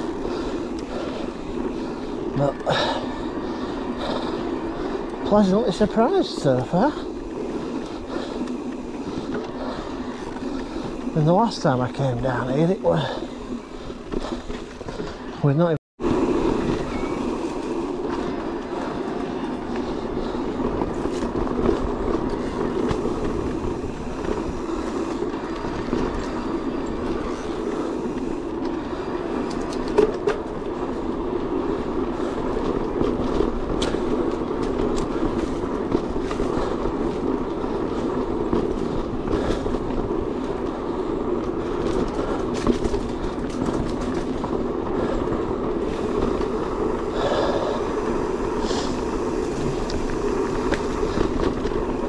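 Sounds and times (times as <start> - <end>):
bike tyres rumbling over trail: 0.0 - 52.0
clicks and knocks over bumps: 18.0 - 48.4.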